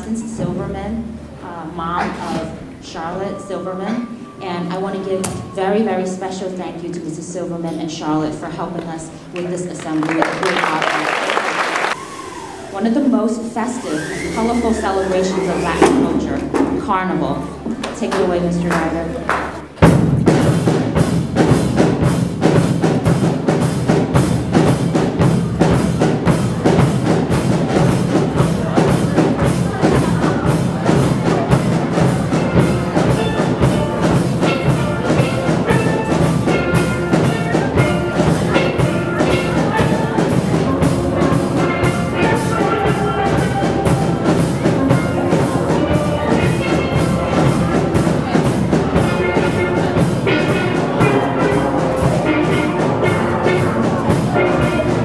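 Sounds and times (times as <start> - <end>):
steel pan melody: 0.0 - 9.2, 12.0 - 55.0
drum kit: 11.8 - 55.0.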